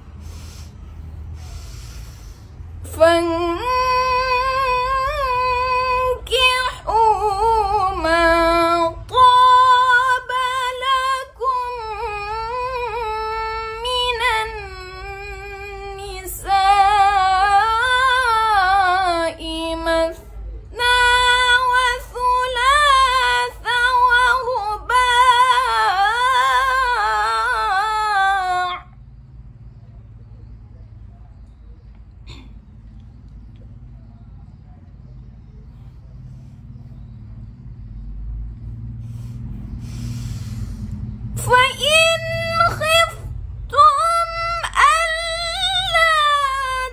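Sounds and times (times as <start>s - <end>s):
woman reciting melodically: 2.8s - 29.1s, 41.4s - 46.9s.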